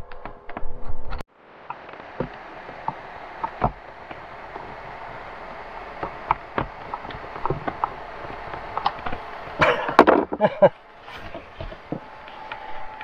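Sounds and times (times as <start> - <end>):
clattering and knocking: 9.0 - 10.5.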